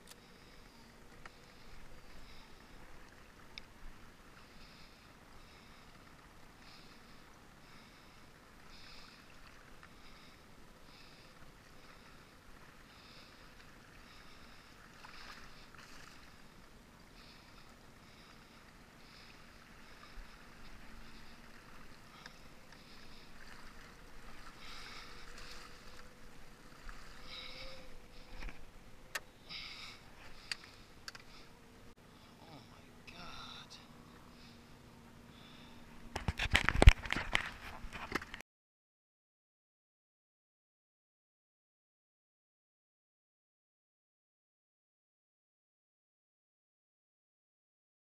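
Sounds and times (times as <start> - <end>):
water splashing around boat: 0.0 - 38.4.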